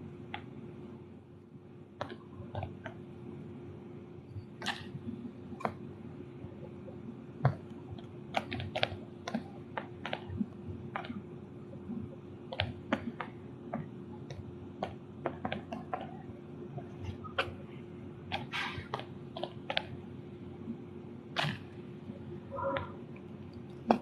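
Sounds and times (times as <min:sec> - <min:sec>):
steady low hum: 0:00.0 - 0:24.0
fingers tapping on phone: 0:12.5 - 0:16.2.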